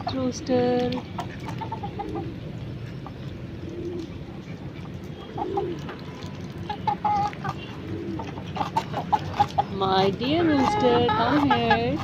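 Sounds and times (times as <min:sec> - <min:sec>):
poultry clucking: 0:00.0 - 0:02.4, 0:03.0 - 0:06.0, 0:06.6 - 0:12.0
poultry cooing: 0:01.5 - 0:02.4, 0:03.5 - 0:04.2, 0:05.1 - 0:05.9, 0:06.6 - 0:12.0.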